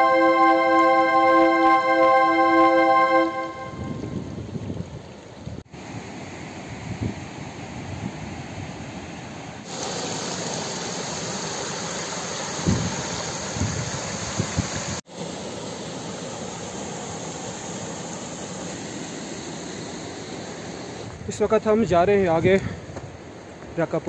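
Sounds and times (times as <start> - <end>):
stream rushing over rocks: 9.6 - 19.6.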